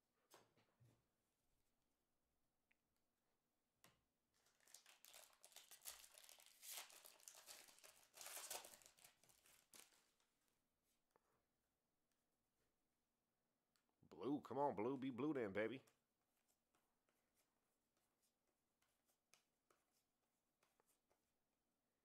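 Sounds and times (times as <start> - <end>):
foil wrapper tearing and crinkling: 4.4 - 10.0.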